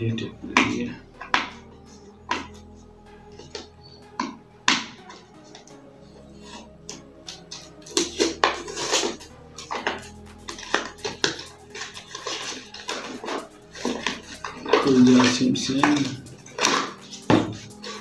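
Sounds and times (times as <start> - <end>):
plastic crinkling scrapes: 6.3 - 18.0.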